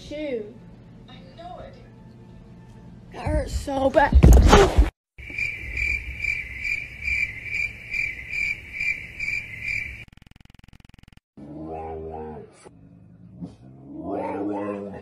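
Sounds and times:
cricket chirping: 5.2s - 11.1s.

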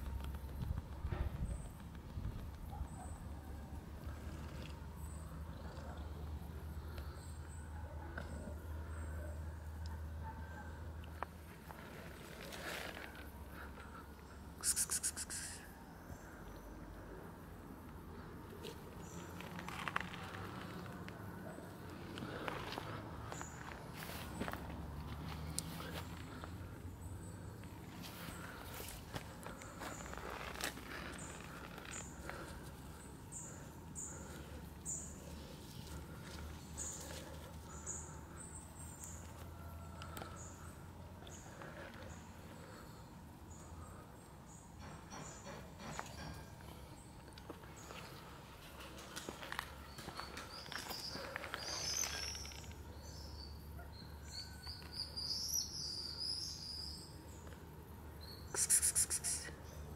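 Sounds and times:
small birds chirping: 21.5s - 59.9s.

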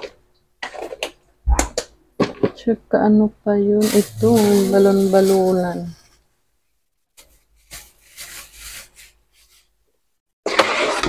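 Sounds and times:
plastic bags rustling: 3.8s - 6.0s, 7.2s - 9.7s.

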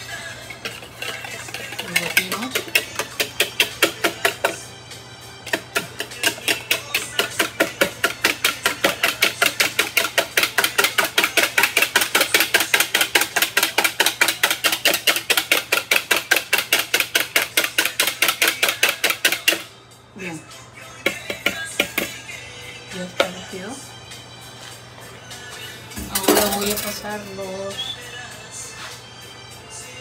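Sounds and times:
whisk beating eggs in bowl: 0.0s - 4.7s, 5.4s - 19.7s, 21.0s - 22.2s.

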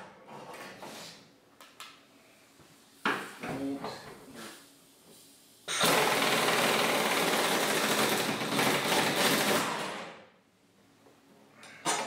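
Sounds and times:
pneumatic impact wrench hammering: 5.7s - 10.1s.

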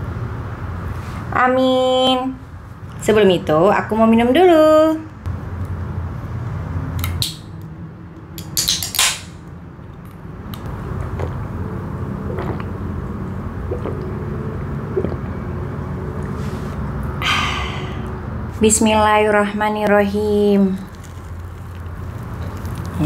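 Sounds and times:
gulping and swallowing: 12.2s - 12.8s, 13.6s - 14.2s, 14.9s - 15.4s.

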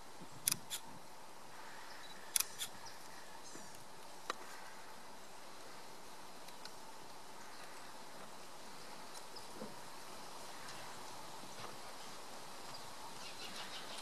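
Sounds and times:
outdoor background hiss: 0.0s - 14.0s
camera shutter clicks: 0.5s - 0.8s, 2.4s - 2.7s.

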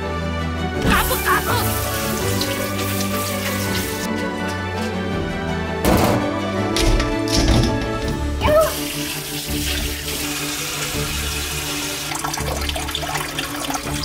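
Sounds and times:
background music: 0.0s - 14.0s
faucet water running into bowl: 1.0s - 4.1s, 8.6s - 14.0s.

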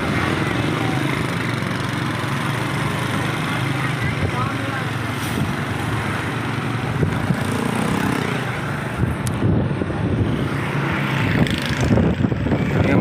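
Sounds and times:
road traffic: 0.0s - 13.0s
wind rushing over microphone: 6.5s - 13.0s.

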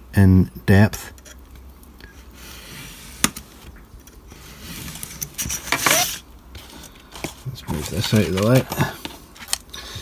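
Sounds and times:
craft knife scraping plastic: 2.4s - 9.7s
handling clicks and knocks: 7.2s - 9.7s.

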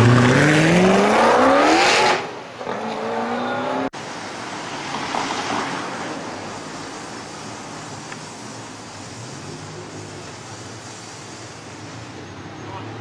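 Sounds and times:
sports car accelerating past: 0.0s - 3.9s
street traffic: 0.0s - 13.0s.

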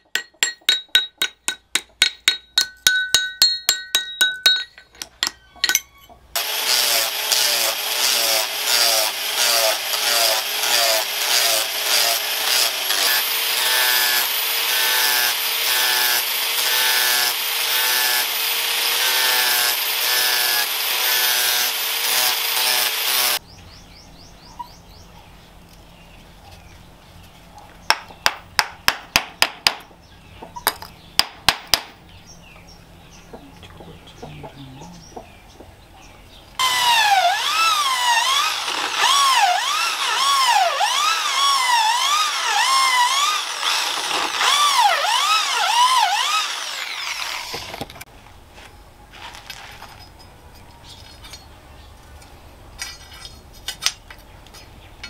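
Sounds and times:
angle grinder grinding wood: 4.4s - 23.4s, 36.6s - 48.1s.

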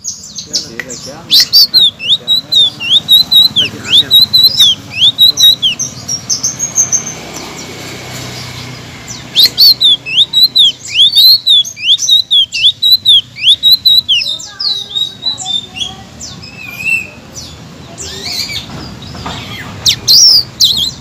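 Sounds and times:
songbird chirping: 0.0s - 21.0s.

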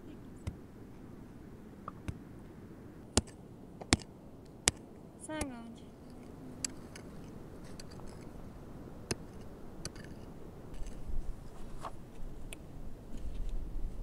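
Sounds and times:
low rumble: 4.2s - 9.8s.

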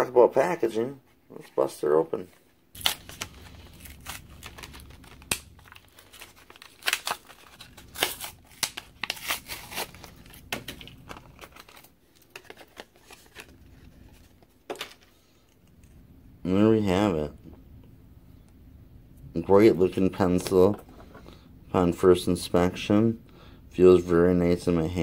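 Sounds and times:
plastic packaging tearing and crinkling: 2.8s - 14.2s.

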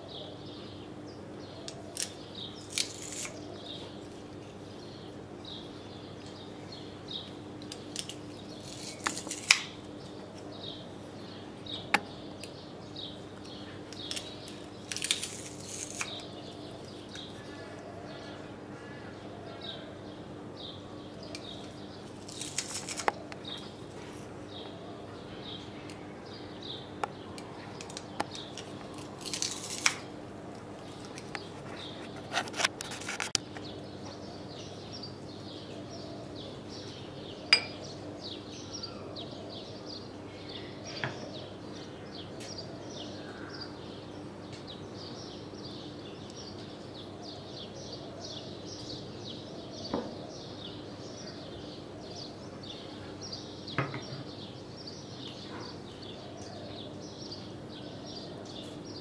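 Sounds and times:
birds chirping: 0.0s - 59.0s
spoon clinking ceramic bowl: 37.5s - 37.8s.

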